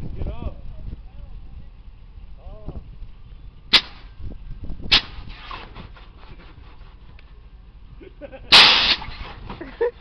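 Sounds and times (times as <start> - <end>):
air suspension valves blasting air: 3.7 - 4.2, 4.8 - 7.0, 8.5 - 9.5.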